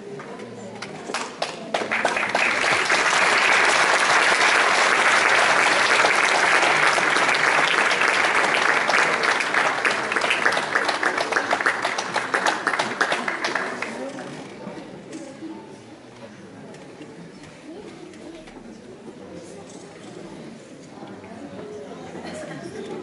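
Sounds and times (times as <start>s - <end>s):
audience applauding: 1.4s - 14.2s.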